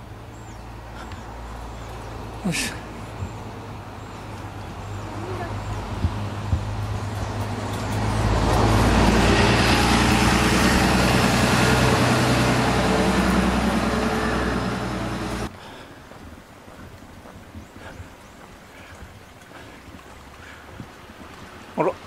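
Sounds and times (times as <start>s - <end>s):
bus diesel engine humming: 0.0s - 15.6s.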